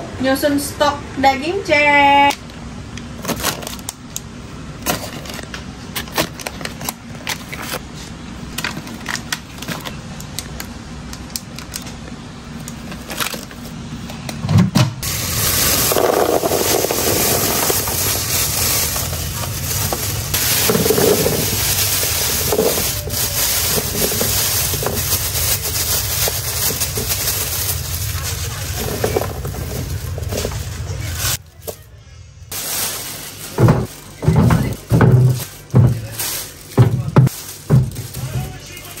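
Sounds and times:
plastic meat packs handled: 15.0s - 31.8s, 32.5s - 39.0s.

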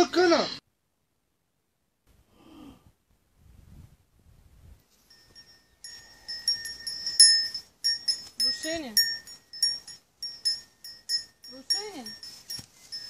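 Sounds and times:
small bell ringing: 5.0s - 13.0s.

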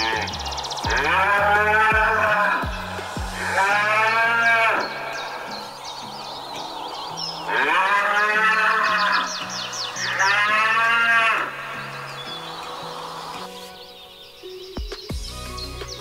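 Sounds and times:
cattle mooing: 0.0s - 2.6s, 3.4s - 5.7s, 7.4s - 12.4s.

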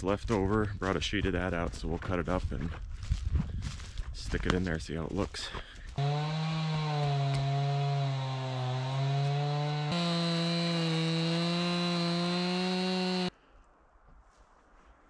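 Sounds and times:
chainsaw cutting log: 6.0s - 13.3s.

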